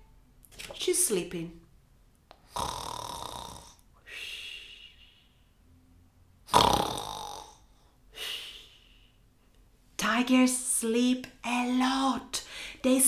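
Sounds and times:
woman pretend snoring: 2.5s - 3.8s, 6.5s - 7.6s.

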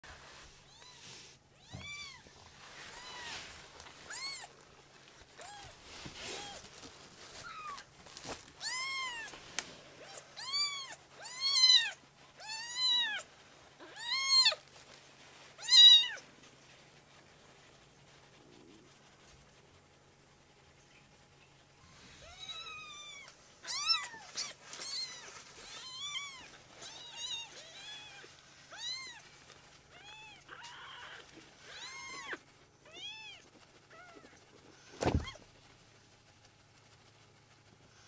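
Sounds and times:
kitten meowing: 8.6s - 9.3s, 22.2s - 29.2s.

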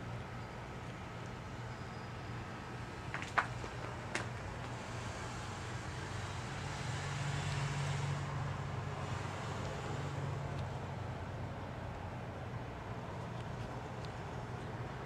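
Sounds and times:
hiss of traffic in snow: 1.3s - 11.9s.

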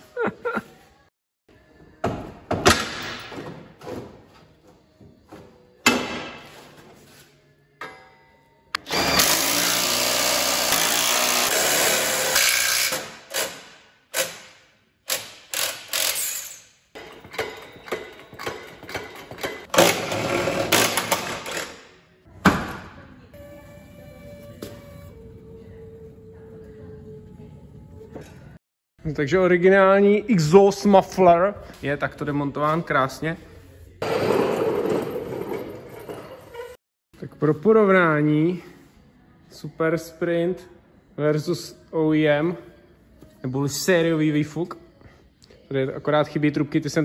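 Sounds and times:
power tool running: 8.8s - 13.0s.

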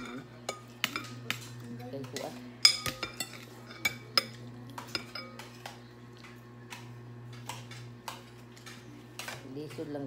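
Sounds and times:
ladle scraping and stirring: 0.0s - 9.4s
metal ladle clinking on glass bowl: 2.6s - 5.5s.

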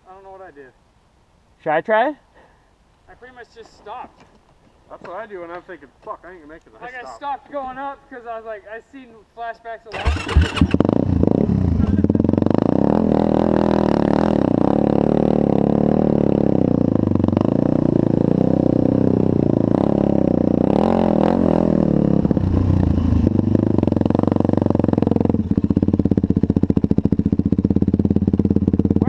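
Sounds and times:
atv engine running: 10.0s - 29.0s.

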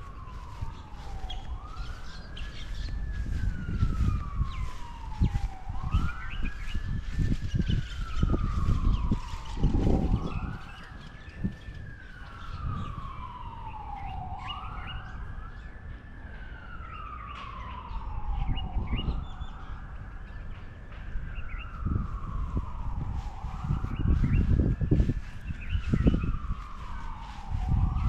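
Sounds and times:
small birds chirping: 0.0s - 15.8s, 23.3s - 28.0s
emergency siren wailing: 0.0s - 28.0s.

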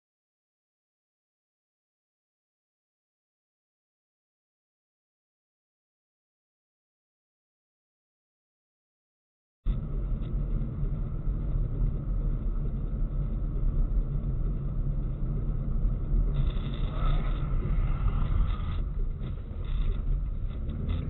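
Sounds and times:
car engine and road noise: 9.7s - 21.0s.

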